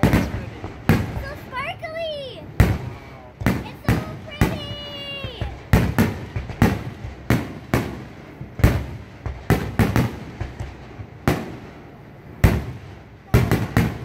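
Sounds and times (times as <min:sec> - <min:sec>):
fireworks bursting with sharp bangs: 0:00.0 - 0:14.0.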